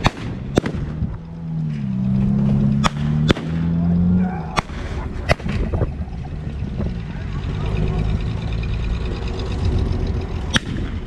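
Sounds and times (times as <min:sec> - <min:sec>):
blank gunshots: 0:00.0 - 0:01.0, 0:02.8 - 0:03.8
low engine hum: 0:00.0 - 0:11.0.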